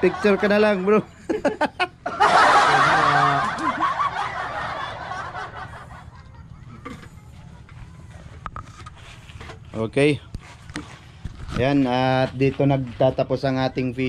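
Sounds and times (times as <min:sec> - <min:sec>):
men laughing: 0:00.0 - 0:08.1.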